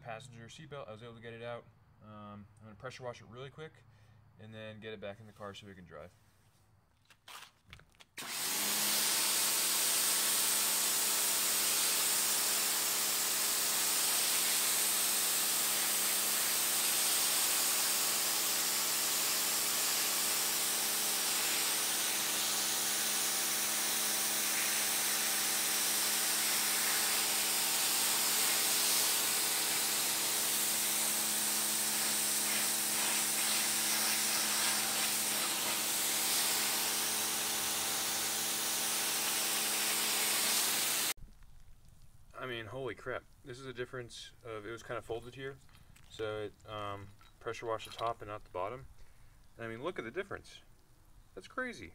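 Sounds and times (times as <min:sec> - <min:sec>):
pressure washer pump humming: 0:08.2 - 0:41.2
water jet hissing: 0:12.8 - 0:41.2.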